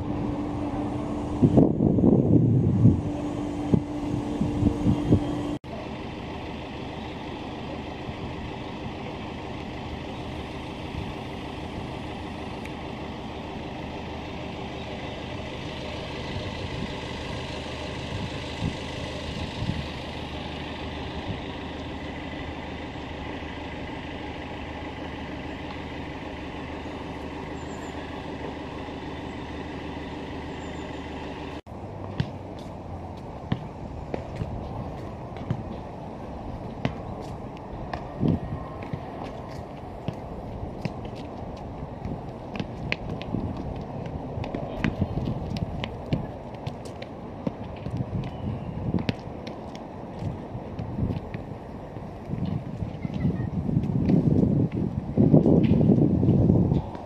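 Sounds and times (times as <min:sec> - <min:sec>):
wind buffeting microphone: 0:00.0 - 0:05.6, 0:15.4 - 0:21.8, 0:33.0 - 0:57.0
road traffic passing: 0:00.0 - 0:57.0.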